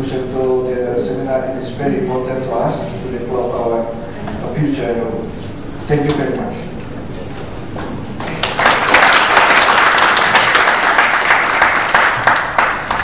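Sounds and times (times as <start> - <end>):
audience applauding: 8.2 - 13.0.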